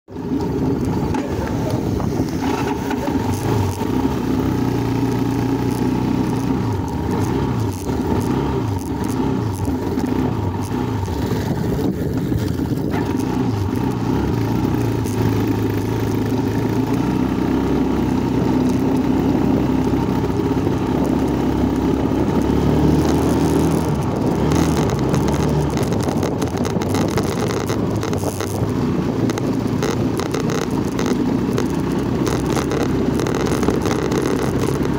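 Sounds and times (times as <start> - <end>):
motorcycle engine revving: 0.1 - 34.9.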